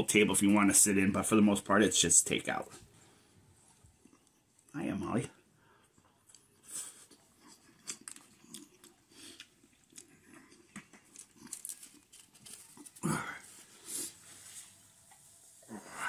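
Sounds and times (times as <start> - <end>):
person chewing food: 3.6 - 4.7, 5.7 - 13.0.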